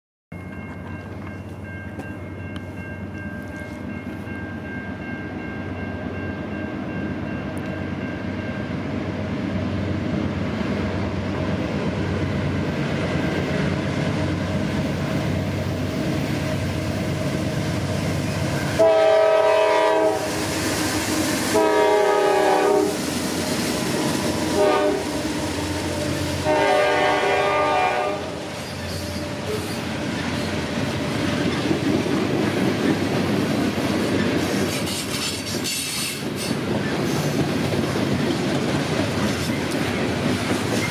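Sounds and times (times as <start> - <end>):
diesel locomotive engine rumble: 0.4 - 40.9
train horn: 18.2 - 29.9.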